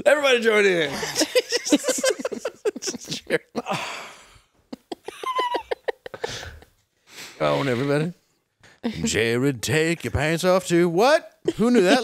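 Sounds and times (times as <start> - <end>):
men laughing: 0.9 - 6.8, 11.5 - 12.0.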